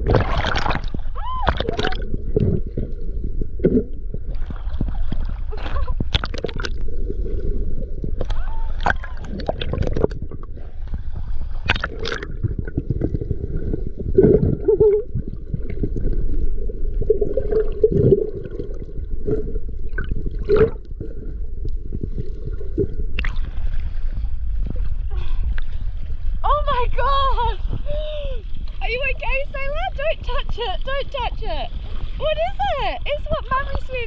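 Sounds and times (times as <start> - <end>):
sharp water splashes: 0.0 - 2.6, 3.6 - 6.9, 11.6 - 12.8
sea water sloshing and gurgling: 0.0 - 34.0.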